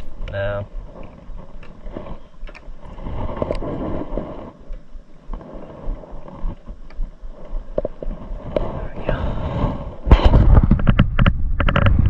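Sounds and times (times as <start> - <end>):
steady low rumble: 0.0 - 12.0
sharp clicks: 2.4 - 2.7.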